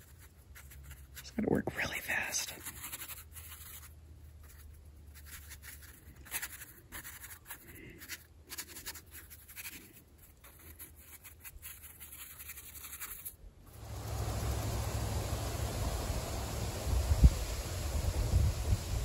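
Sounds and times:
paintbrush scratching on paper: 0.0 - 13.4.

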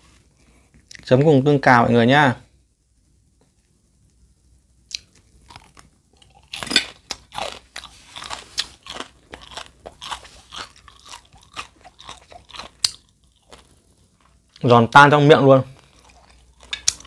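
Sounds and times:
person chewing crunchy food: 4.9 - 14.7, 15.6 - 17.0.

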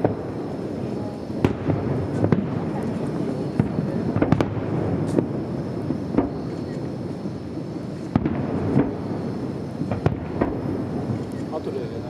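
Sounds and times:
continuous low noise: 0.0 - 12.0
firework shells bursting: 0.0 - 12.0.

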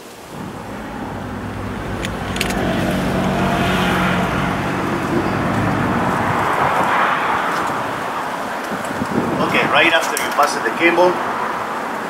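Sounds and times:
vehicle engine running: 0.3 - 8.1
sharp clicks: 2.0 - 2.6.

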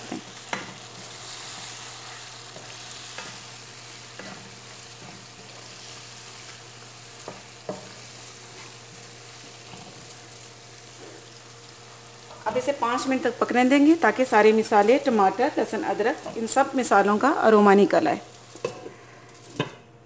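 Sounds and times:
sauce sizzling in hot oil: 0.0 - 19.7.

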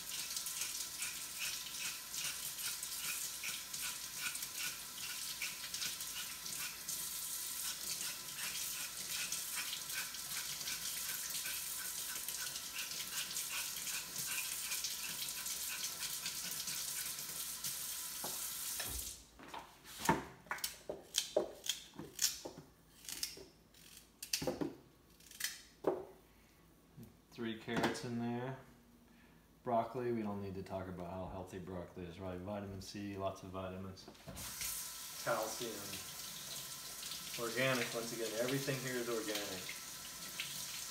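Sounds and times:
kitchen tap running: 0.0 - 19.2, 34.3 - 40.9.

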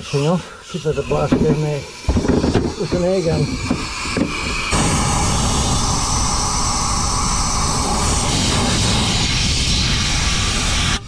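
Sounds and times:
compressed air blow gun hissing: 0.0 - 11.0.

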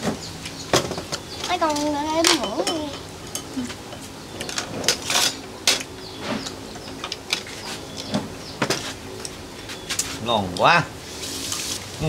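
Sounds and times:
chopsticks and dishes clinking: 1.5 - 5.9.

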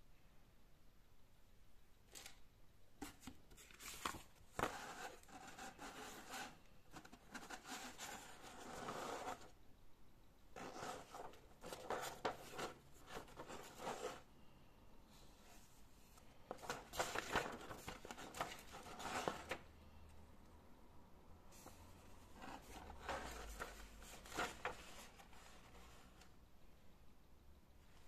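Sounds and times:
paper rustling and crinkling: 3.0 - 9.4, 10.6 - 14.3, 16.5 - 19.6, 22.3 - 26.3.

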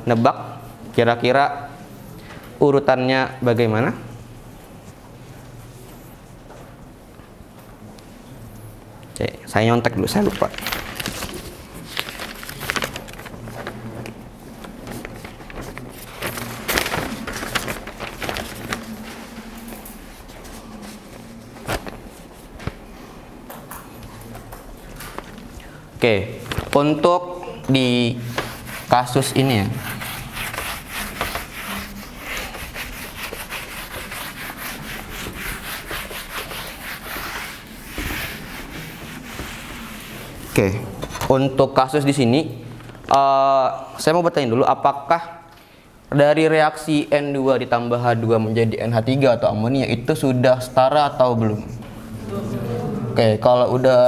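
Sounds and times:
eraser rubbing on whiteboard: 28.2 - 40.5.

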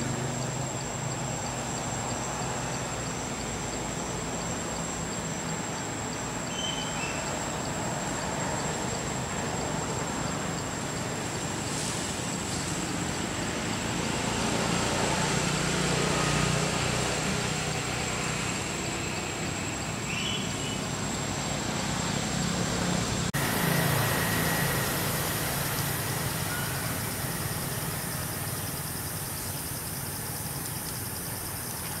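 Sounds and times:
low outdoor rumble: 21.0 - 32.0
thin high whine: 23.4 - 31.8.

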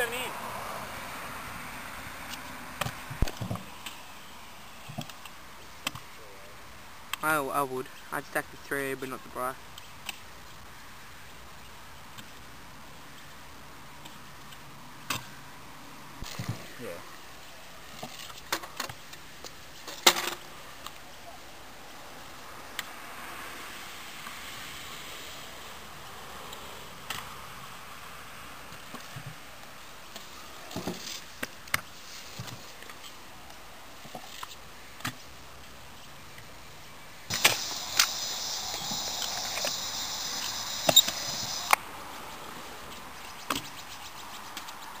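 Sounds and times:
steady high buzz: 37.3 - 41.8.

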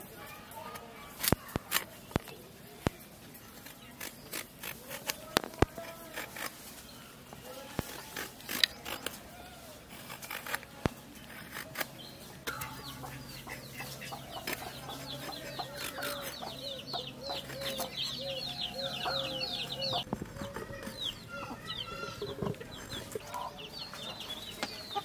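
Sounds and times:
blade scraping gourd skin: 3.5 - 6.9, 7.6 - 12.7, 13.5 - 18.2
chickens clucking: 11.8 - 25.0.

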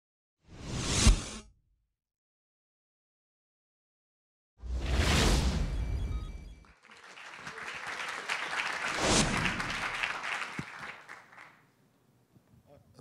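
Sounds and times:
audience applause: 6.6 - 11.6.

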